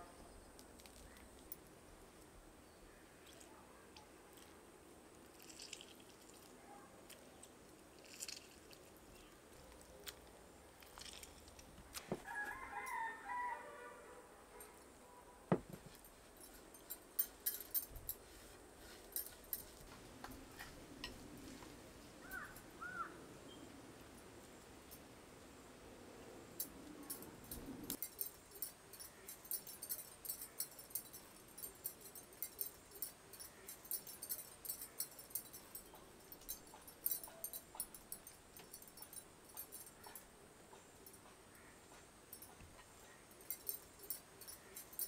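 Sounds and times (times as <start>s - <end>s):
rooster crowing: 12.2s - 14.2s.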